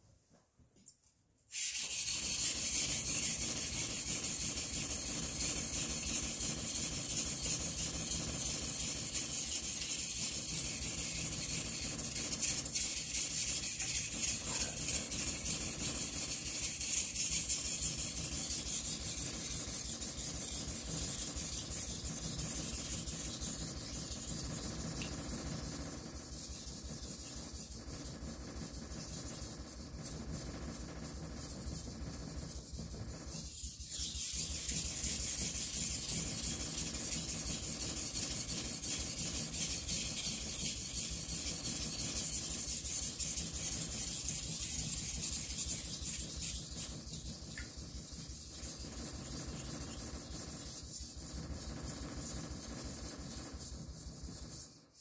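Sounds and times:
knife scraping on whetstone: 12.6 - 15.3.

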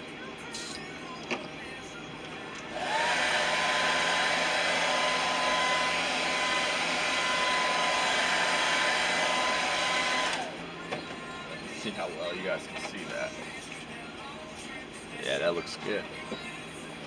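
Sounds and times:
hair dryer running: 2.7 - 10.7.

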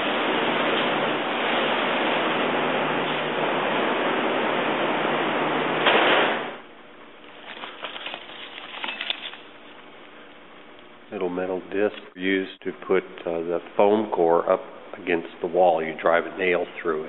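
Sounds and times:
metal discs clinking: 7.4 - 9.5.

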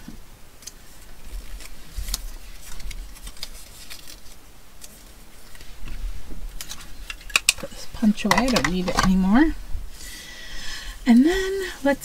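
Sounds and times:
paper rustling: 0.6 - 9.1.

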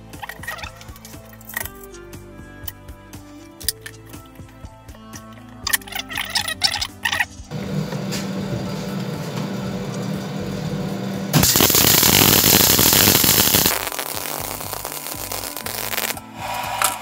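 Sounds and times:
background music: 0.0 - 17.0
workshop machine motor hum: 7.5 - 12.1
harsh machine hiss: 11.4 - 17.0.

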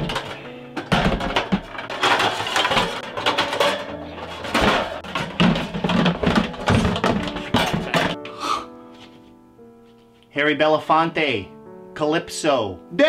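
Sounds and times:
wire cage rattling: 0.0 - 8.2.

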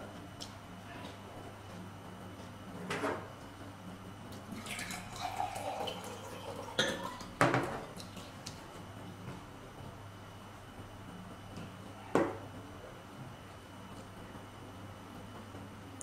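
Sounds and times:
drink poured into a glass: 4.6 - 7.2
tableware knocking on table: 6.8 - 7.8.

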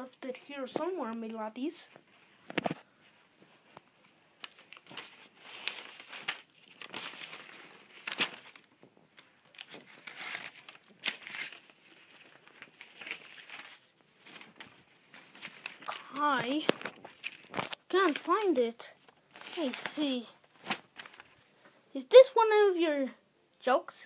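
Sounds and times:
rustling and crinkling: 0.3 - 21.6.

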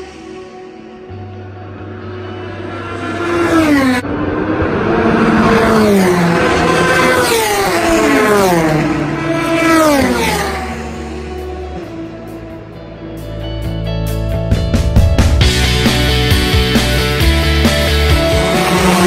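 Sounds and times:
race cars passing at speed: 0.0 - 13.4, 15.7 - 19.0.

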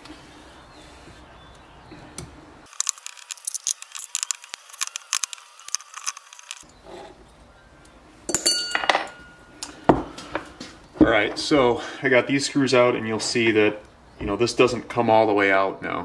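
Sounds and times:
metallic clink with ring: 8.3 - 9.5.

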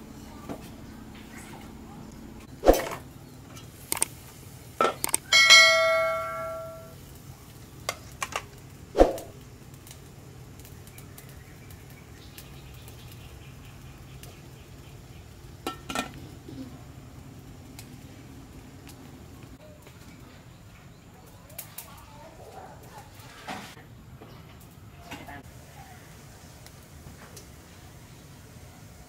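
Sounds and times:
metal pot lid clanking: 5.3 - 6.9
ringing metallic tone: 5.3 - 7.0.

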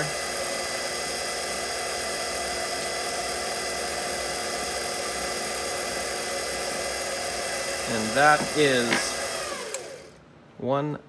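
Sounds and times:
file on spinning metal: 0.0 - 10.1
lathe motor whine: 0.0 - 10.2.

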